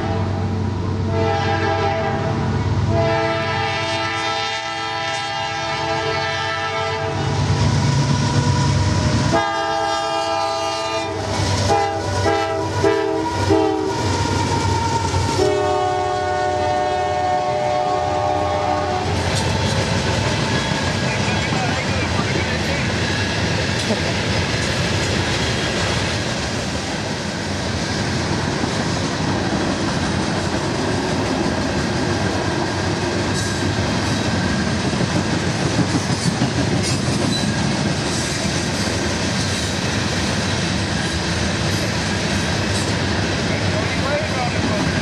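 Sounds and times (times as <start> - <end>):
train air horn blasts: 0.0 - 0.5, 1.1 - 7.5, 8.4 - 19.2
diesel locomotive rumble: 0.0 - 45.0
train wheels clattering on rails: 11.2 - 45.0.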